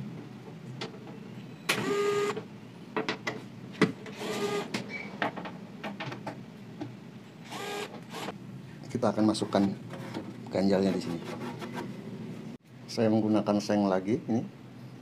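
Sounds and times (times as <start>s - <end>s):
electric screwdriver whirring: 7.5s - 8.3s.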